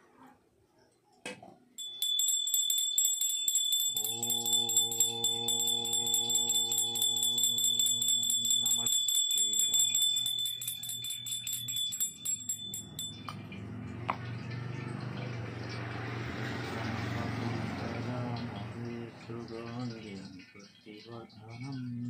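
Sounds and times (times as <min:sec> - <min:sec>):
small brass hand bell ringing: 0:01.8 - 0:13.6
conch shell long low note: 0:04.0 - 0:08.9.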